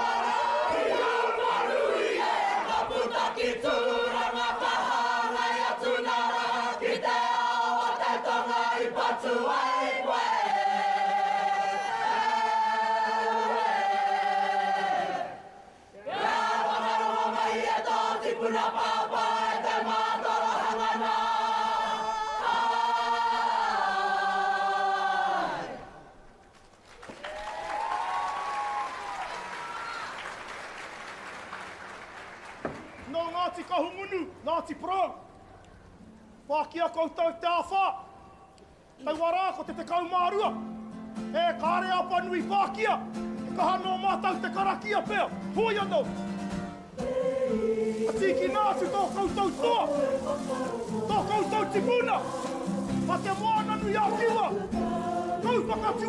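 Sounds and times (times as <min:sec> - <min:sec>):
group singing in harmony: 0:00.0 - 0:26.2, 0:46.8 - 0:56.0
crowd applause: 0:26.8 - 0:33.1.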